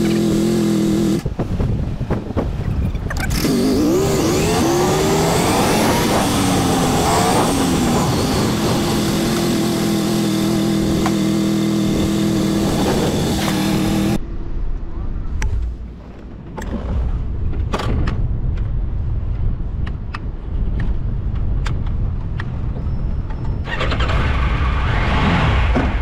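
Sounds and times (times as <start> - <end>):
motorcycle engine: 0.0 - 1.4, 3.2 - 14.2
wind rushing: 0.7 - 14.2.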